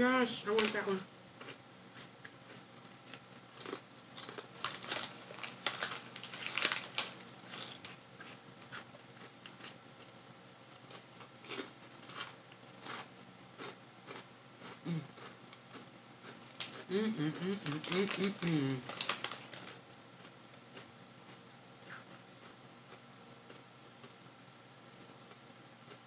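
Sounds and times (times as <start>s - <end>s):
plastic chip bag crinkling: 0.3s - 14.2s, 16.2s - 19.8s.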